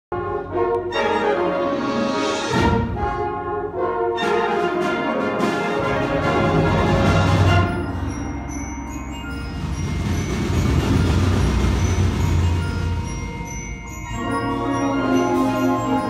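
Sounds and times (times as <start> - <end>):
band with brass section: 0.1 - 8.0, 14.2 - 16.0
low brass: 0.1 - 8.4.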